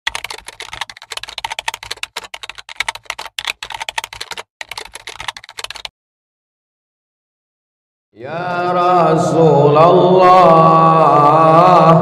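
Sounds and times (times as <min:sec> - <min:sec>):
rapid keyboard typing: 0:00.1 - 0:05.9.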